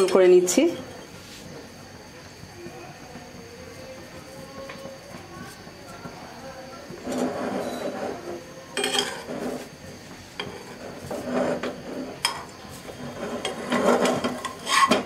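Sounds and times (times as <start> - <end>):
metal spatula scraping frying pan: 7.0 - 9.7, 10.4 - 15.0.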